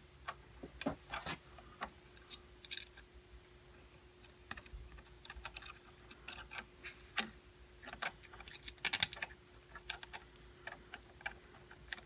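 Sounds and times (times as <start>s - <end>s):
small metal clicks and taps: 4.5s - 12.0s.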